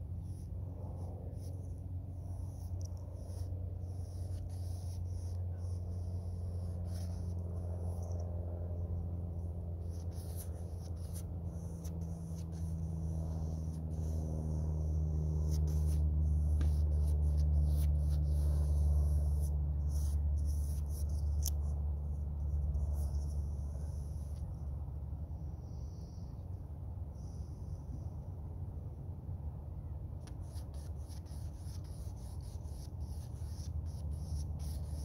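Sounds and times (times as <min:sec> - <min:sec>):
low steady hum: 0:00.0 - 0:35.0
paintbrush scraping on canvas: 0:00.2 - 0:08.8, 0:09.8 - 0:21.8, 0:30.2 - 0:35.0.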